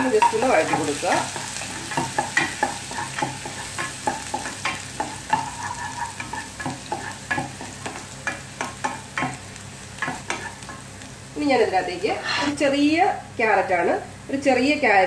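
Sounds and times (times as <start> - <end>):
vegetables sizzling in oil: 0.0 - 15.0
wooden spatula scraping a pot: 0.2 - 8.0, 12.1 - 12.6.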